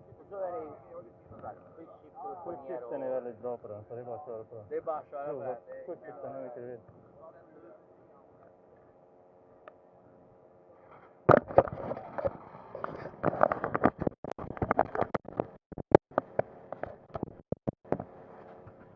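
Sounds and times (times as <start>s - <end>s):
handling noise on microphone: 10.8s - 15.5s.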